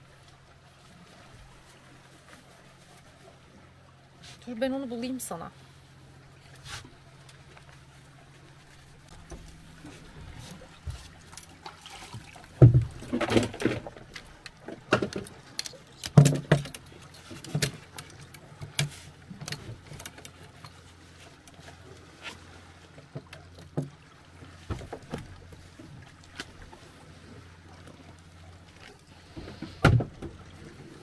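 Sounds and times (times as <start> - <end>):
gear clattering and clinking: 12.6 - 20.9.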